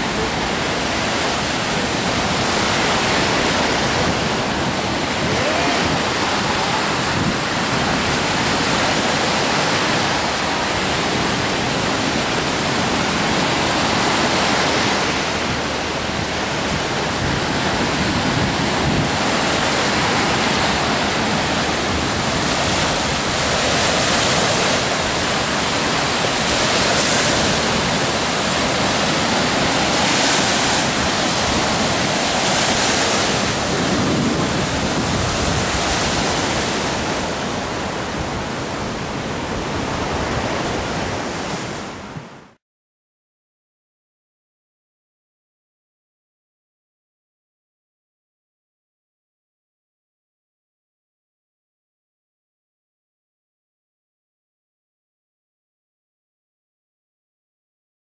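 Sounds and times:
surf washing onto sandy beach: 0.0s - 42.6s.

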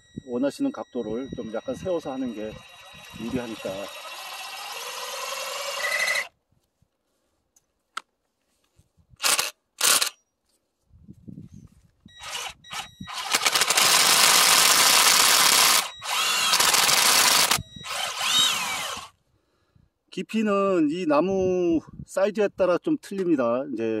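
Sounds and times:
cordless drill boring into wood: 1.6s - 6.3s, 9.2s - 10.1s, 12.2s - 19.1s.

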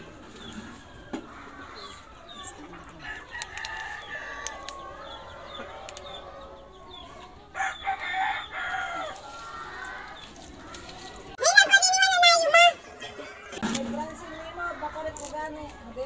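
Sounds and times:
chickens clucking: 0.0s - 16.0s
rooster crowing: 3.0s - 6.6s, 7.6s - 9.2s.

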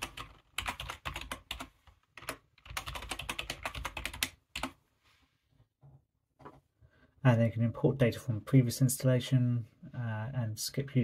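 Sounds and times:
typing on computer keyboard: 0.0s - 4.8s.

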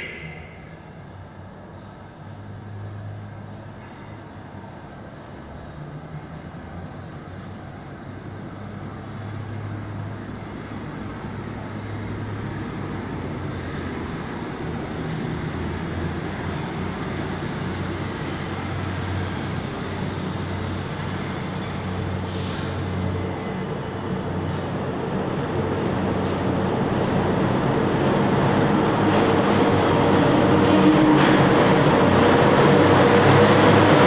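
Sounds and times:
subway train rumble: 0.0s - 34.0s
air hiss: 22.2s - 22.9s.

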